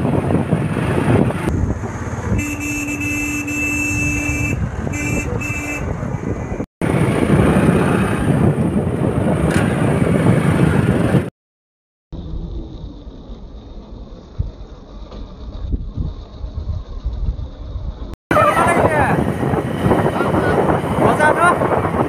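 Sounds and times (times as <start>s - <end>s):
wind on microphone: 0.0s - 2.9s, 3.8s - 11.3s, 15.4s - 22.0s
vehicle horn: 2.3s - 6.0s
motorbike engine rumble: 12.2s - 22.0s.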